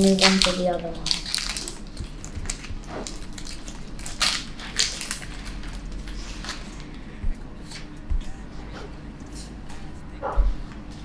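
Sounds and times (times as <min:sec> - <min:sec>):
foil wrapper crinkling and tearing: 0:00.0 - 0:07.0.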